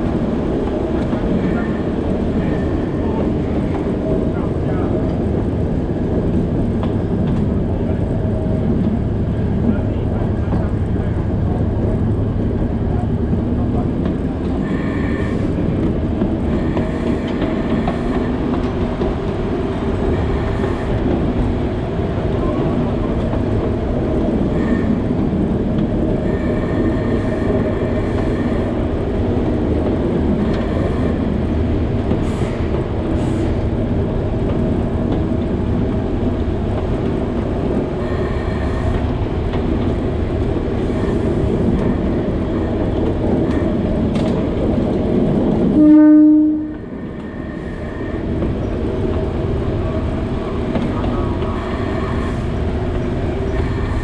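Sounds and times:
train running on track: 0:00.0 - 0:54.0
train horn blast: 0:24.5 - 0:25.0, 0:45.7 - 0:46.9.

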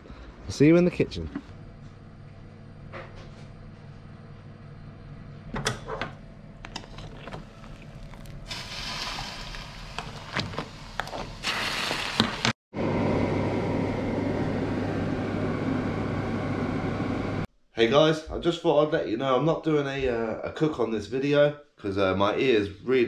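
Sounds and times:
water bubbling in a pot: 0:06.8 - 0:12.3
low hum: 0:12.8 - 0:17.5.

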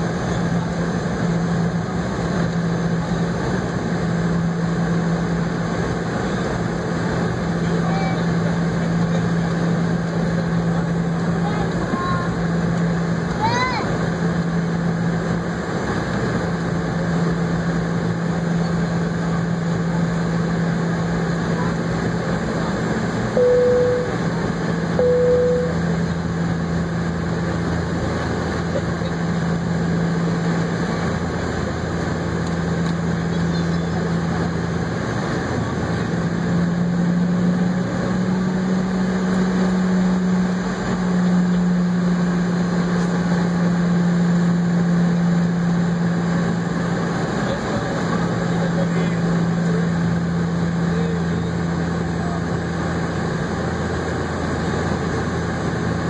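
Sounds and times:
jet engine hum: 0:00.0 - 0:56.0
short beeps: 0:23.4 - 0:26.2.

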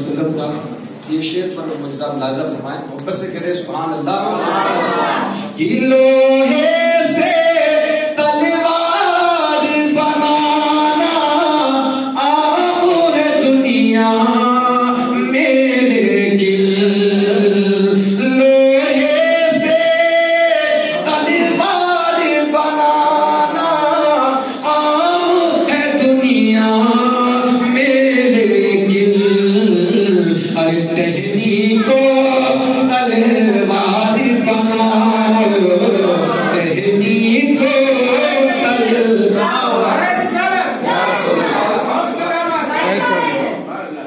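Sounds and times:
man singing unaccompanied: 0:04.1 - 0:41.5.

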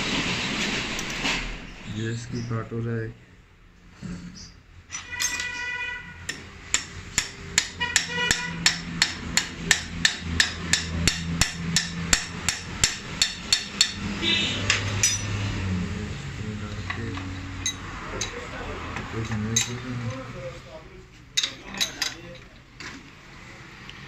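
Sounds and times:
metallic ring: 0:04.9 - 0:05.8, 0:14.8 - 0:15.5, 0:17.2 - 0:18.4
hammer tapping on metal: 0:06.2 - 0:15.4.

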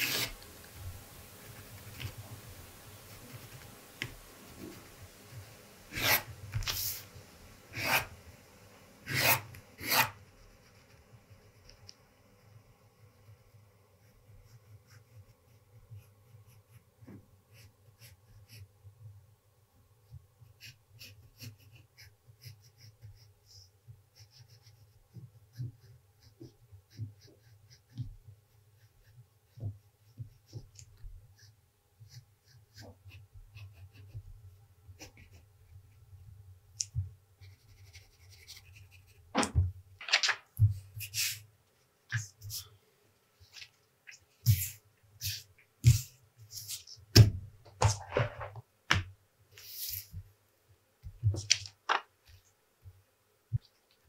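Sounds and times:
pencil scratching on paper: 0:00.0 - 0:00.4, 0:03.0 - 0:07.1, 0:07.7 - 0:08.2, 0:09.0 - 0:11.9, 0:13.2 - 0:18.7, 0:20.1 - 0:34.3, 0:35.0 - 0:35.9, 0:37.4 - 0:39.3, 0:40.8 - 0:41.5, 0:44.4 - 0:48.4
paper rustling: 0:39.4 - 0:41.4, 0:51.3 - 0:52.4.

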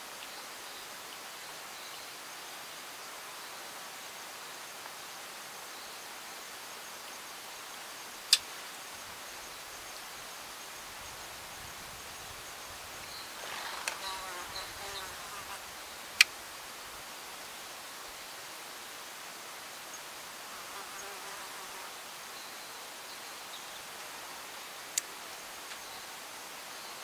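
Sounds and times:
faint hiss: 0:00.0 - 0:27.0
high insect trill: 0:07.2 - 0:18.3
insect buzzing by: 0:08.4 - 0:17.6, 0:20.3 - 0:24.7.

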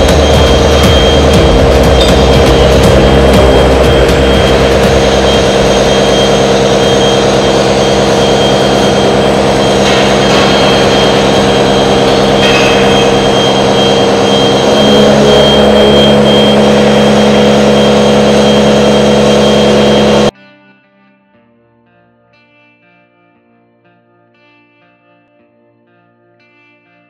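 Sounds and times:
milling machine cutting steel: 0:00.0 - 0:20.3.

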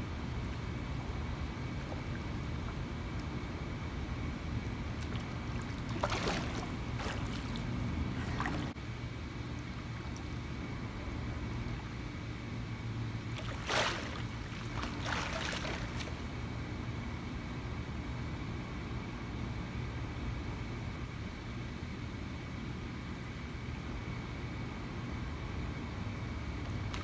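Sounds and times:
steady low hum: 0:00.0 - 0:27.0
pool water splashing: 0:00.4 - 0:08.8, 0:12.8 - 0:16.7.

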